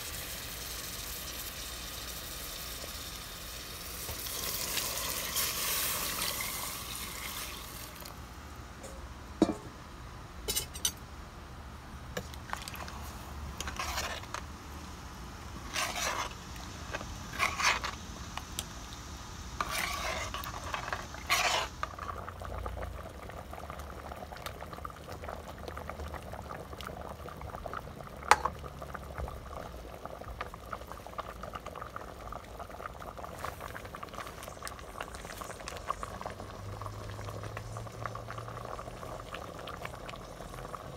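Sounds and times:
liquid hissing in hot pot: 0:00.0 - 0:08.1, 0:19.5 - 0:22.7
soup bubbling: 0:00.0 - 0:09.7, 0:12.1 - 0:40.9
ladle scraping and knocking pot: 0:08.8 - 0:09.7, 0:13.6 - 0:14.4, 0:15.6 - 0:18.0, 0:19.6 - 0:21.8.

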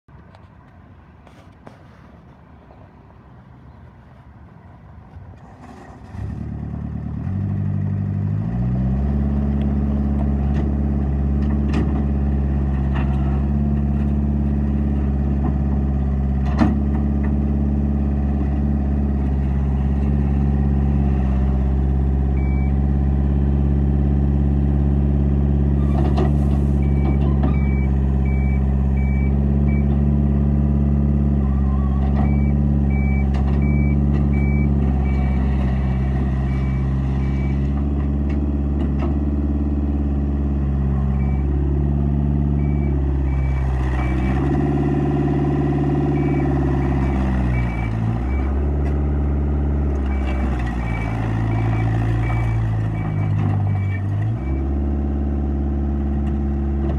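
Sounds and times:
diesel engine running: 0:01.2 - 0:56.9
backup alarm beeping: 0:22.4 - 0:22.8, 0:26.8 - 0:29.9, 0:31.6 - 0:35.5, 0:36.4 - 0:37.6, 0:41.1 - 0:41.5, 0:42.6 - 0:44.4, 0:46.2 - 0:48.6, 0:50.1 - 0:54.6.

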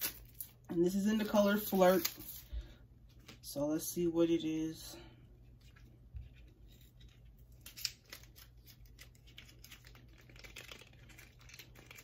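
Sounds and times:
wrapper crinkling: 0:01.2 - 0:02.5, 0:06.6 - 0:12.0
wrapper snapping: 0:07.0 - 0:12.0.

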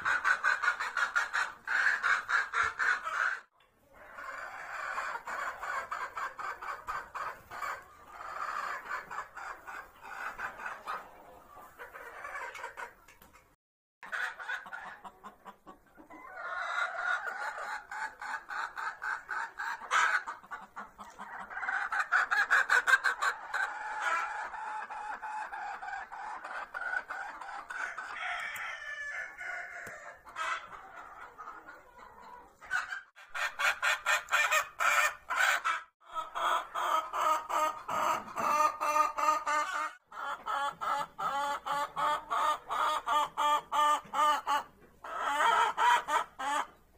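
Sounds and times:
chickens clucking: 0:00.0 - 0:46.9.

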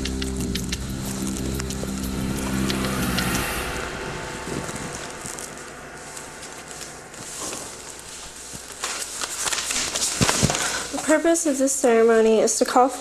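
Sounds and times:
low sustained music chord: 0:00.0 - 0:10.1
crackly rustling noise: 0:00.0 - 0:13.0.

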